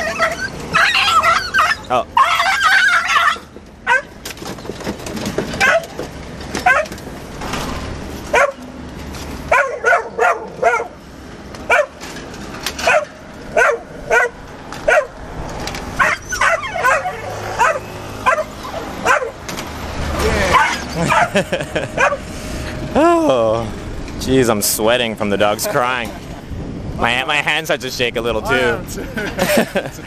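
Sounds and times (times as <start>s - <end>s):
dog yelping: 0.0s - 4.2s, 5.6s - 6.0s, 6.6s - 6.9s, 8.3s - 8.6s, 9.5s - 11.0s, 11.7s - 12.0s, 12.8s - 15.2s, 16.0s - 19.4s, 20.4s - 21.4s, 22.0s - 22.2s.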